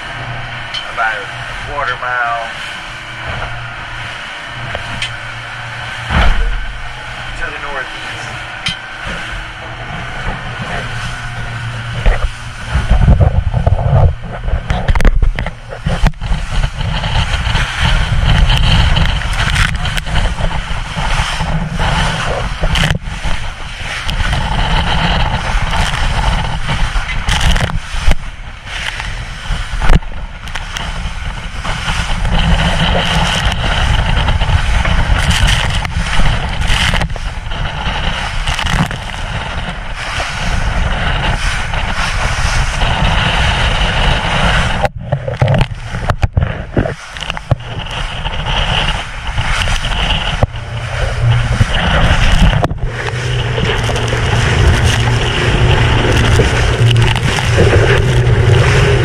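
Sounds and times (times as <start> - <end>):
water rushing along boat hull: 0.0 - 59.0
wind buffeting microphone: 0.0 - 59.0
boat hull thumps: 6.1 - 6.8.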